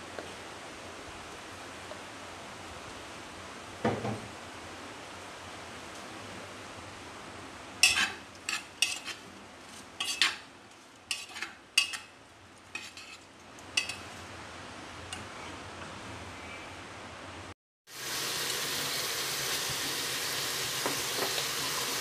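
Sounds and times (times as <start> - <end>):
spoon scraping in a pot: 7.8 - 10.4, 11.1 - 12.1, 12.7 - 14.2.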